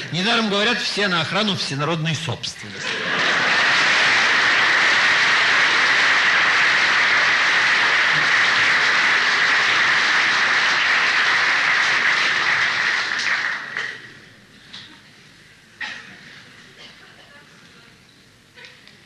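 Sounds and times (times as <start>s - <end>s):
audience applauding: 2.8s - 14.1s.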